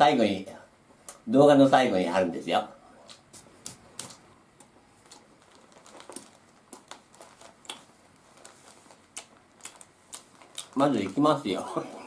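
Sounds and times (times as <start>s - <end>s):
paper booklet rustling: 5.0s - 11.6s.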